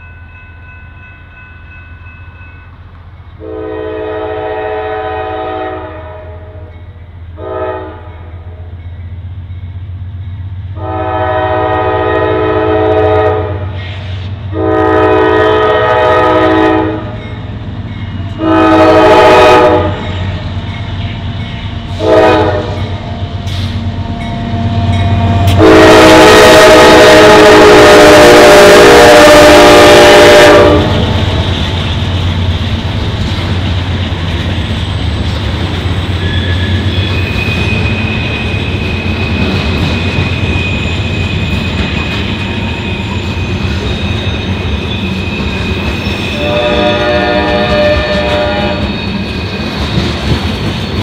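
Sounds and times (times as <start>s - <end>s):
train wheel noise: 0.0s - 51.0s
locomotive horn blasts: 3.4s - 6.7s, 7.4s - 8.3s, 10.8s - 13.8s, 14.5s - 17.2s, 18.4s - 20.1s, 22.0s - 22.9s, 25.1s - 31.0s, 46.3s - 48.9s.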